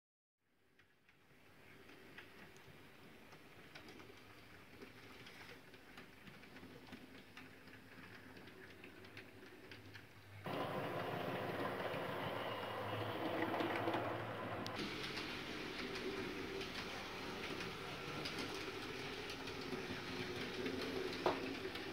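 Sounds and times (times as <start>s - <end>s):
wheels clicking over track: 5.7s - 21.9s
model train motor hum: 10.5s - 21.9s.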